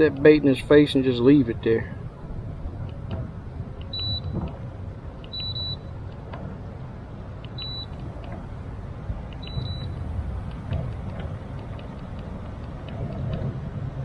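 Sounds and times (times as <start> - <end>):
wind rumble on microphone: 0.0 - 14.0
high electronic beeps: 3.9 - 4.4, 5.3 - 5.9, 7.6 - 7.9, 9.4 - 10.0.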